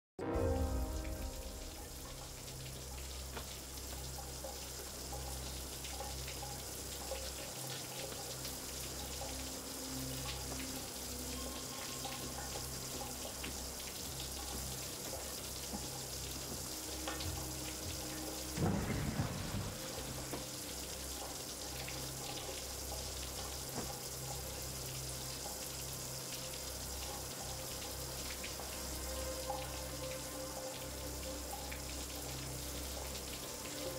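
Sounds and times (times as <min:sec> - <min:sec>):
low hum: 0:00.2 - 0:04.0
water running hiss: 0:00.4 - 0:33.9.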